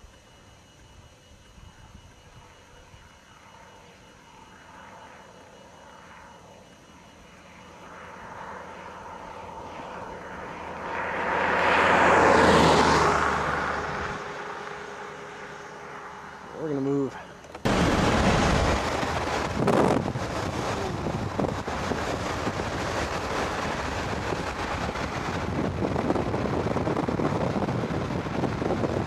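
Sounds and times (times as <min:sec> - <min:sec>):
vehicle passing by: 0:10.6 - 0:16.4.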